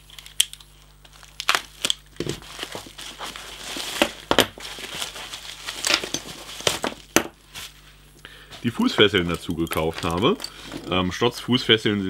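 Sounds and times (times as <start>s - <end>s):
packaging crinkling and rustling: 0.0s - 7.9s, 8.6s - 11.0s.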